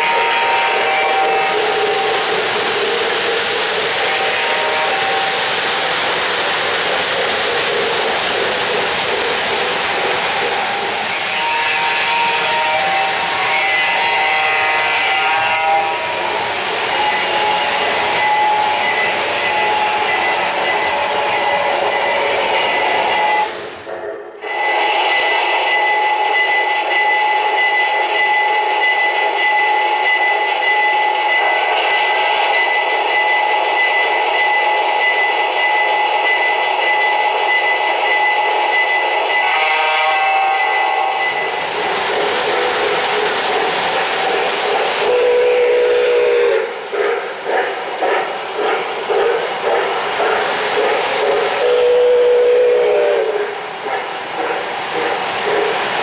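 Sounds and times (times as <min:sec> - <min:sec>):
horn-like blasts: 0:00.0 - 0:02.2, 0:04.0 - 0:05.4, 0:10.6 - 0:16.3, 0:39.4 - 0:41.5, 0:45.0 - 0:46.7, 0:51.6 - 0:53.4
hiss: 0:00.0 - 0:36.2, 0:38.4 - 0:56.0
model freight cars clattering: 0:01.6 - 0:13.0, 0:15.6 - 0:24.0.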